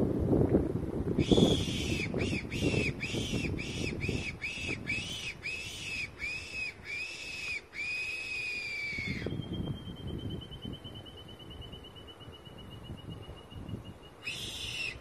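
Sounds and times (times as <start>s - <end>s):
fox whistle squealing: 1.2s - 10.2s, 14.2s - 15.0s.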